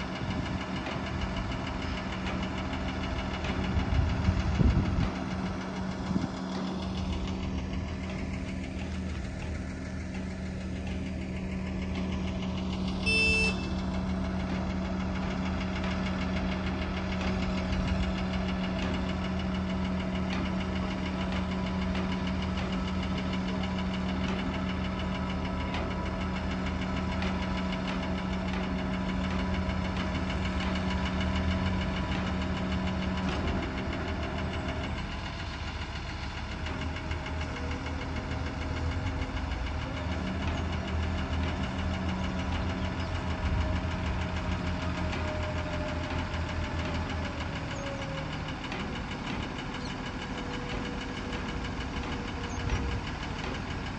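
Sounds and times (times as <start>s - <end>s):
crane diesel engine running: 0.0s - 53.9s
short high-pitched tone: 13.0s - 13.8s.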